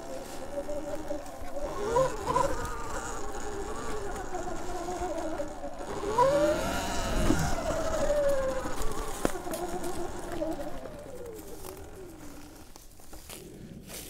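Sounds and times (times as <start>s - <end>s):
electric motor whine: 0.0s - 13.5s.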